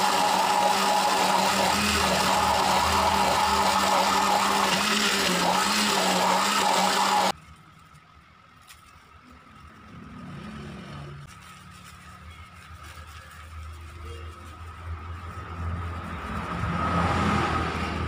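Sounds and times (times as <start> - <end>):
electric blender motor running: 0.0 - 7.3
sugar pouring into jug: 0.0 - 7.4.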